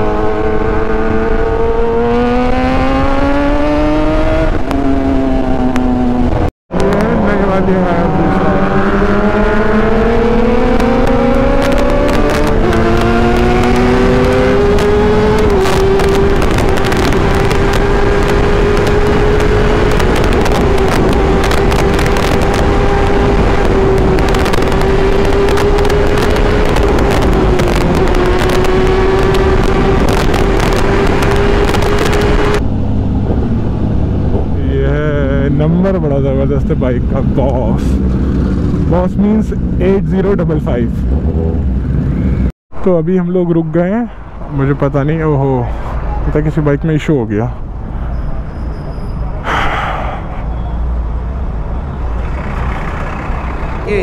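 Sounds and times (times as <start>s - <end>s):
motorcycle engine revving: 0.0s - 42.5s
wind rush: 0.0s - 42.5s.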